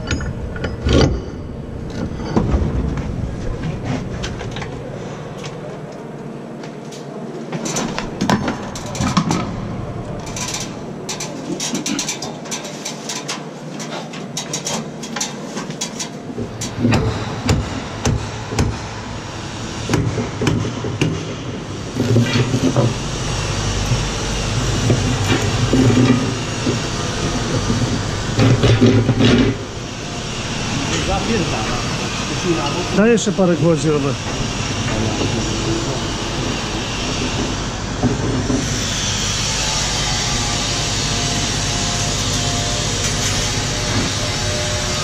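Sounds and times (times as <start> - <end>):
low engine rumble: 0.0 - 12.4.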